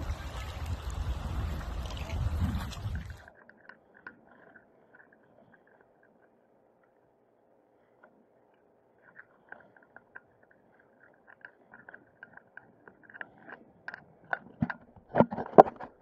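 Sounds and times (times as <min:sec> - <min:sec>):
crackling knocks and taps on a sailboat: 0:09.0 - 0:16.0.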